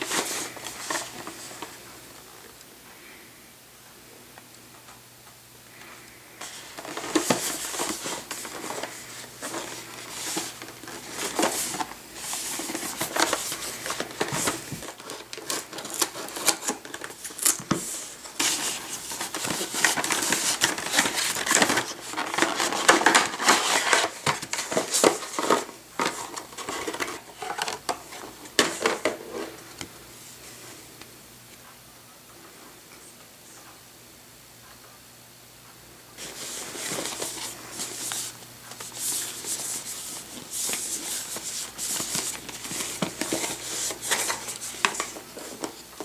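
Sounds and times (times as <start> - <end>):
plastic packaging crinkling: 6.4 - 29.6, 36.2 - 46.0.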